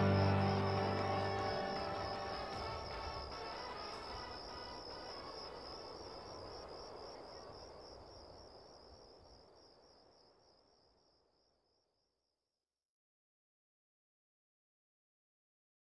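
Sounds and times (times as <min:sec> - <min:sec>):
soft evening hum: 0:00.0 - 0:12.0
crickets chirping: 0:00.0 - 0:12.4.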